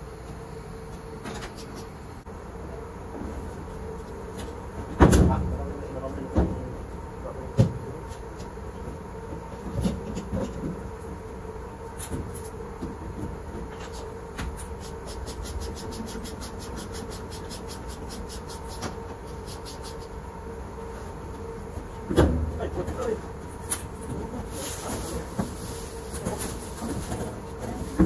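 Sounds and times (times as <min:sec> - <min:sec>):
laundry machinery humming: 0:00.0 - 0:28.0.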